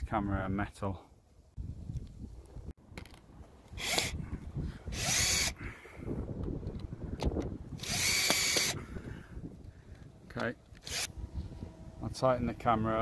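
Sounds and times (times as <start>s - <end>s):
cordless drill driving screws: 3.7s - 4.2s, 4.9s - 5.6s, 7.8s - 8.8s, 10.8s - 11.1s.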